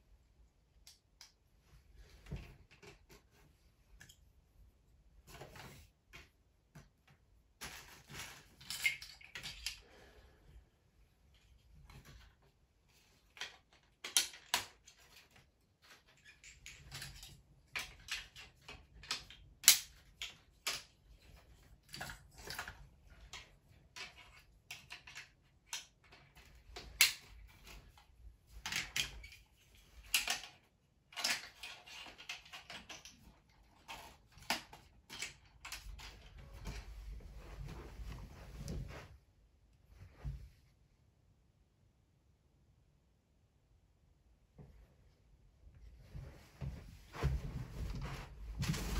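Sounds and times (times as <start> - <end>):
plastic pieces clicking together: 13.3 - 15.2, 28.6 - 36.3.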